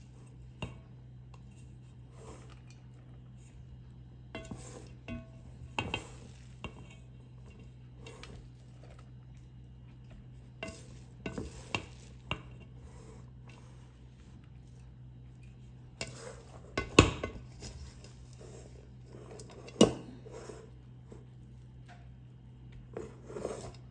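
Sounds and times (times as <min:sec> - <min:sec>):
steady low hum: 0:00.0 - 0:23.9
metal utensil scraping a pan: 0:04.3 - 0:09.0, 0:10.6 - 0:13.9, 0:16.0 - 0:20.7, 0:23.0 - 0:23.9.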